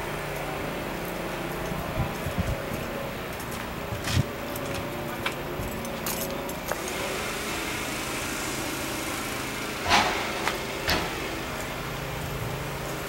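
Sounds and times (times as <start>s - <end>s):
outdoor background hum: 0.0s - 13.0s
short rattling clatter: 9.8s - 11.4s.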